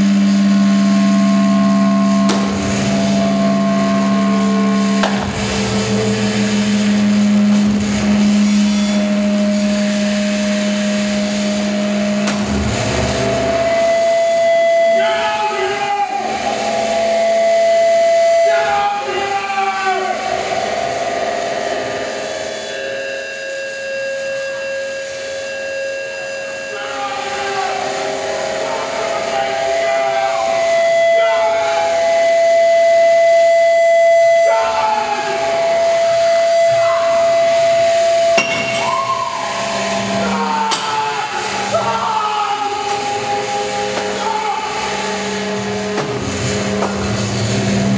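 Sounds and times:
whistling microphone feedback: 8.4s - 10.8s, 13.2s - 18.8s, 22.1s - 40.5s.

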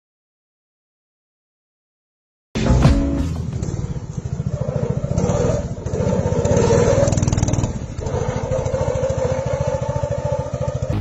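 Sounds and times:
small motorcycle engine revving: 2.6s - 11.0s.

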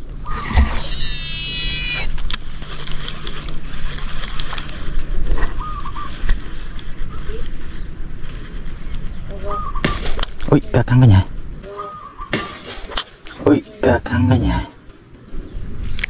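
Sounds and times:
short chirps: 0.3s - 2.1s.

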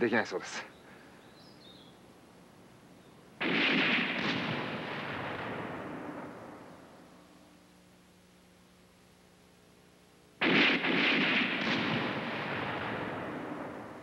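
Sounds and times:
loud gunshot with echo: 3.4s - 6.7s, 10.4s - 14.0s.

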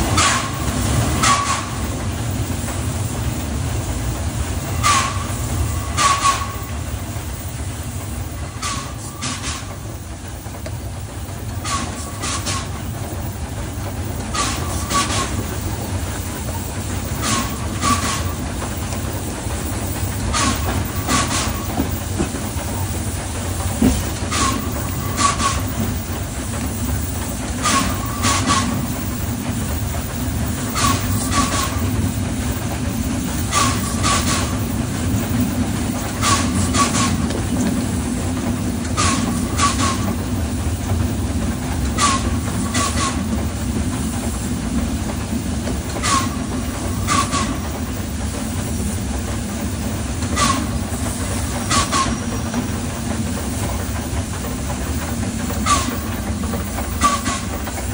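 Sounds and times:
steam locomotive rumble: 0.0s - 57.9s
wheel clicks over rail joints: 13.8s - 43.5s, 50.2s - 57.9s.

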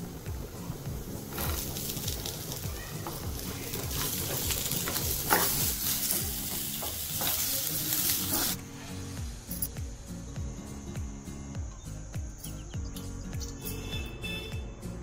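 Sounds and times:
vegetables sizzling in a pan: 0.0s - 10.0s.

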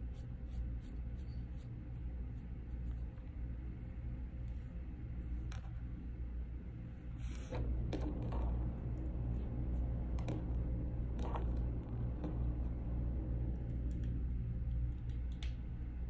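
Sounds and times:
comb scratching through dog hair: 0.0s - 3.2s
steady low hum: 0.0s - 16.0s.

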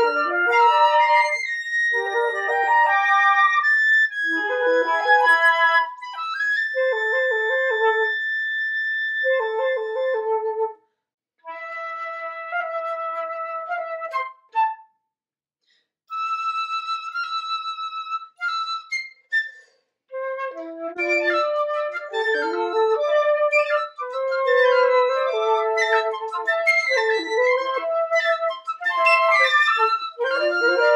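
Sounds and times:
piccolo and flutes playing: 0.0s - 10.7s, 20.2s - 30.9s.

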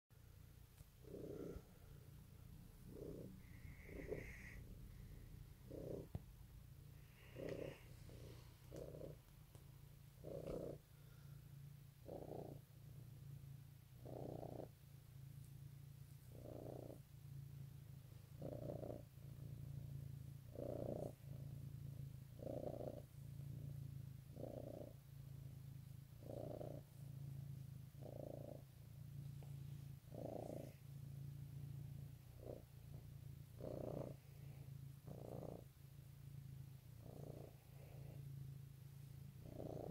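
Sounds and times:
cat purring: 0.1s - 39.9s.

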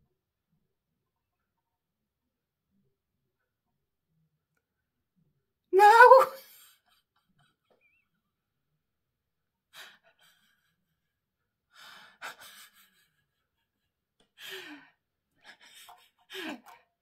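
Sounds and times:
woman breathing and sighing: 14.2s - 17.0s.

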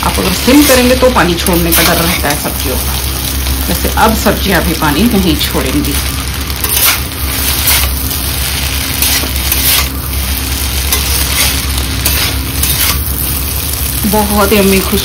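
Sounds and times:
noodles sizzling in a hot pan: 0.0s - 15.0s
spatula strokes in a pan: 6.6s - 13.0s.

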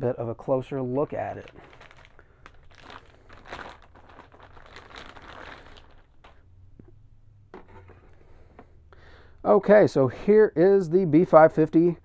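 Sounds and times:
packaging crinkling and rustling: 1.1s - 6.4s.

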